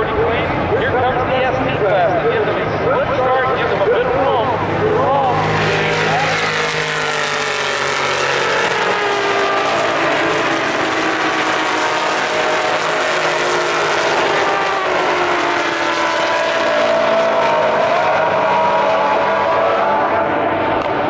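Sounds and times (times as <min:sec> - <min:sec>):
race car engines droning: 0:00.0 - 0:21.0.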